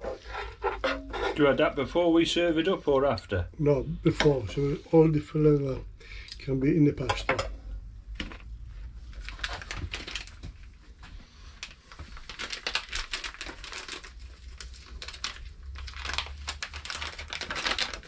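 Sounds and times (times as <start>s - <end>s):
plastic packet crinkling: 9.0s - 10.7s, 11.6s - 18.0s.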